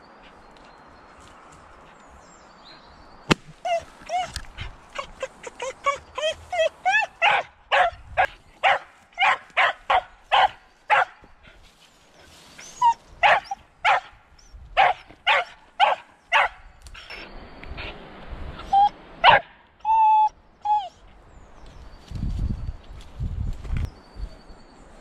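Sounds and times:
dog yelping: 3.6 - 8.0, 12.7 - 14.1, 14.8 - 16.5, 18.7 - 21.0
dog barking: 7.0 - 11.2, 13.2 - 14.2, 14.8 - 16.6, 19.2 - 19.5.

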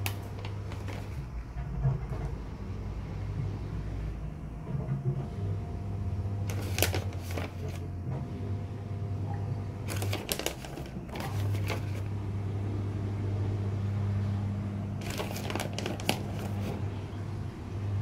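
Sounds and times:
parchment paper rustling: 0.0 - 1.3, 6.4 - 8.0, 9.8 - 12.1, 15.0 - 17.0.

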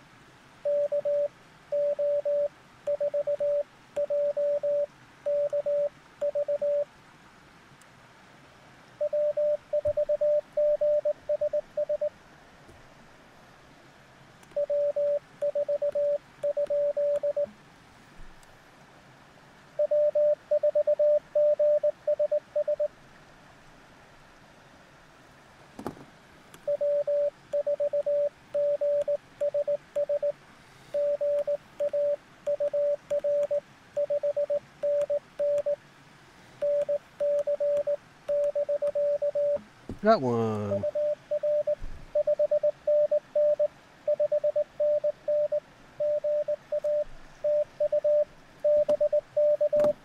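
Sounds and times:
morse code beeps: 0.6 - 6.9, 9.0 - 12.1, 14.5 - 17.5, 19.8 - 22.9, 26.7 - 35.8, 36.6 - 39.6, 40.6 - 50.0.

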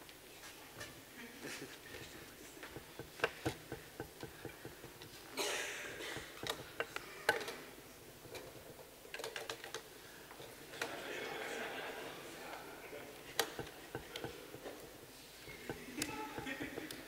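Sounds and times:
light clicks and knocks: 1.7 - 10.9, 13.3 - 17.0.

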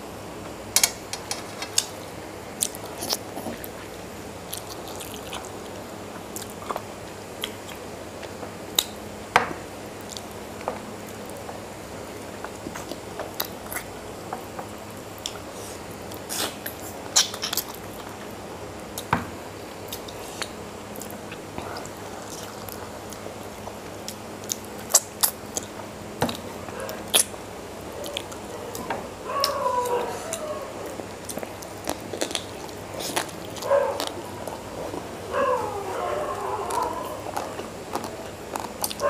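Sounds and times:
chewing food: 2.6 - 9.0, 10.0 - 11.6, 19.8 - 39.0.

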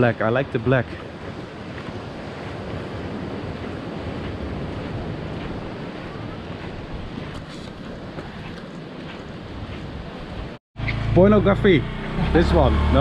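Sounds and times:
wind on microphone: 0.8 - 11.0.

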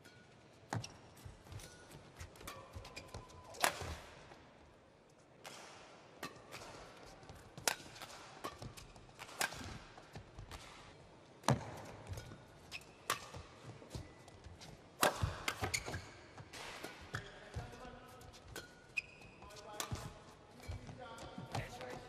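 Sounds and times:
racket striking shuttlecock: 0.0 - 4.1, 5.4 - 10.8, 11.4 - 14.1, 15.0 - 17.2.

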